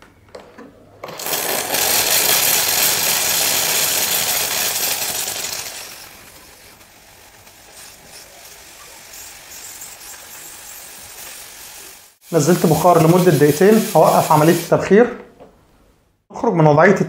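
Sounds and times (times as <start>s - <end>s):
steam wand hissing: 1.2s - 14.8s.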